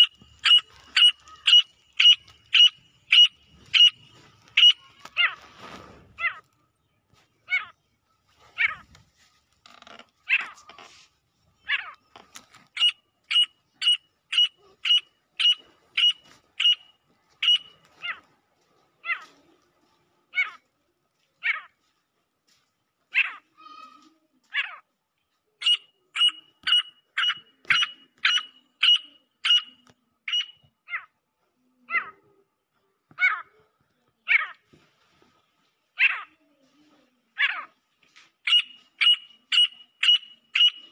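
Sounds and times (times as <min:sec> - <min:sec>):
francolin calling: 0:00.0 - 0:05.4, 0:12.8 - 0:18.2, 0:25.6 - 0:31.0, 0:38.5 - 0:40.9.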